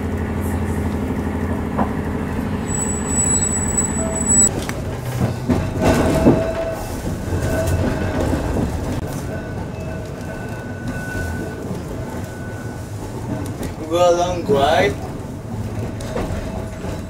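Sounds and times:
tram motors and wheels humming: 0.0s - 17.0s
thin high whine: 2.6s - 4.5s.

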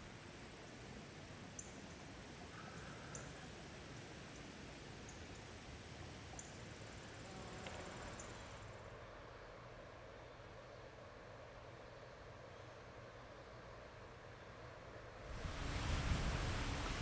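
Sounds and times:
high-pitched insect trill: 1.5s - 8.6s.

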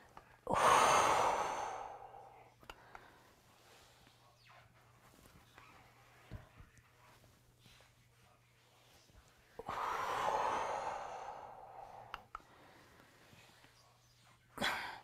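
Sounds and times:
woman's long exhale: 0.5s - 2.2s, 9.6s - 12.2s.

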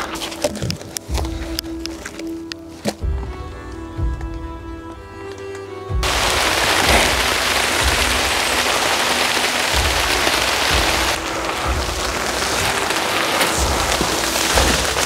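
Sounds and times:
rain on leaves: 6.0s - 15.0s.

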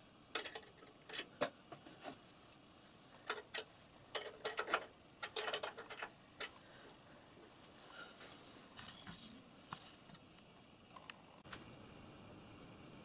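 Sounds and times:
spanner clicking on metal nut: 3.3s - 6.5s.

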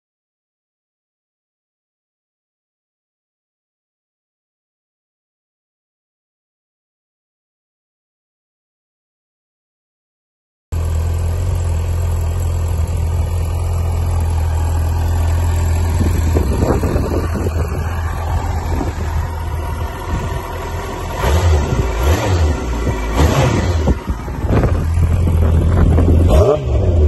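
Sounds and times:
motorcycle engine running: 10.8s - 27.0s.

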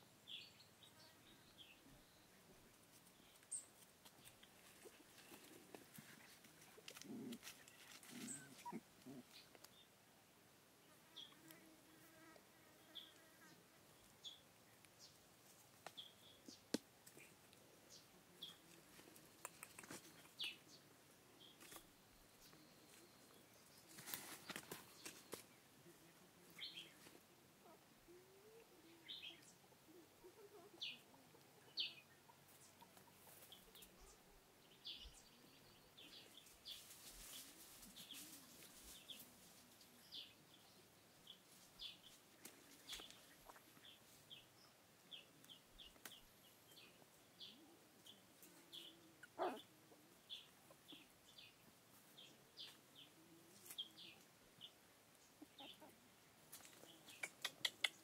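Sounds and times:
birds chirping: 12.8s - 36.9s, 39.9s - 58.0s.

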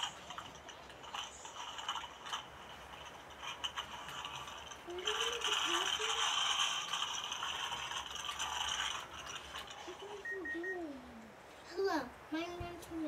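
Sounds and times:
rapid rattling and scraping: 0.0s - 10.3s
faint children's voices: 4.8s - 7.0s, 9.8s - 13.0s.

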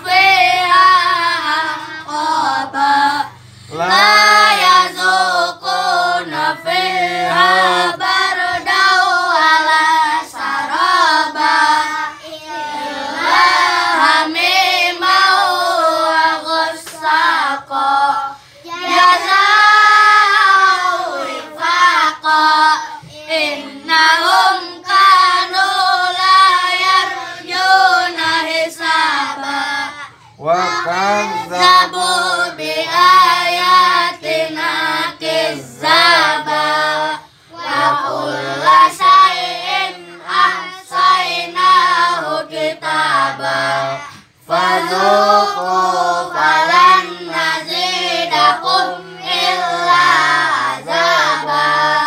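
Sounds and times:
children chanting together: 4.0s - 52.0s.

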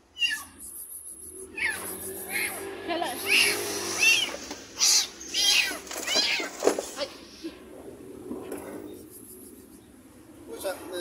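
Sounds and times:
kitten meowing: 0.2s - 0.6s, 1.5s - 2.6s, 3.2s - 6.6s.

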